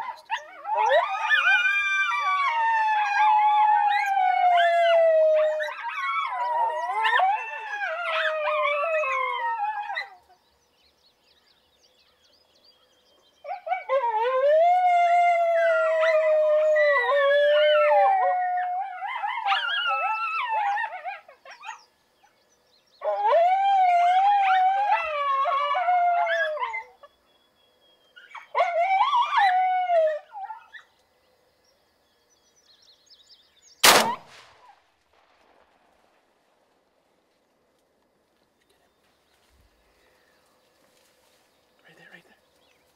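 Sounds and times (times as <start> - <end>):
coyotes howling and yipping: 0.0 - 34.8
shotgun blast: 33.8 - 36.0.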